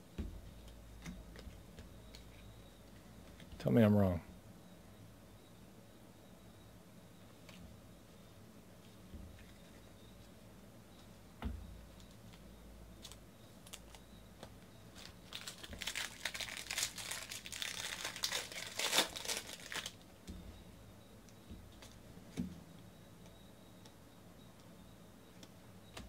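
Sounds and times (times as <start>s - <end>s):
foil wrapper tearing and crinkling: 15.0s - 20.0s.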